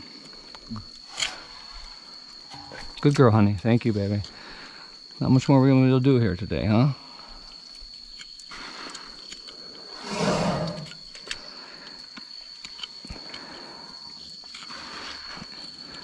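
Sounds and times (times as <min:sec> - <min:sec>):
elephant call: 0:10.0 - 0:11.0
hoof knife scraping: 0:10.0 - 0:11.0.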